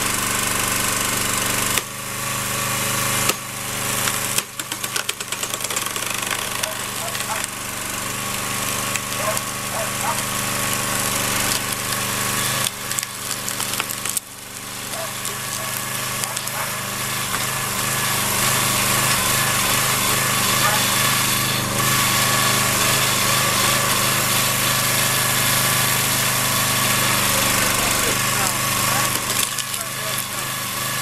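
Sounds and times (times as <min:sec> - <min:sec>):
small gas engine running: 0:00.0 - 0:31.0
wood creaking and cracking: 0:04.0 - 0:07.6, 0:11.4 - 0:14.3, 0:27.8 - 0:30.3.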